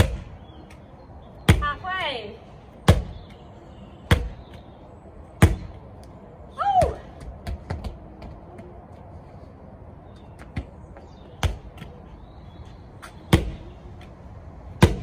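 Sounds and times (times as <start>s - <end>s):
medicine ball thuds: 0.0s - 0.3s, 2.8s - 3.3s, 4.1s - 4.5s, 5.4s - 5.8s, 13.3s - 13.7s, 14.8s - 15.0s.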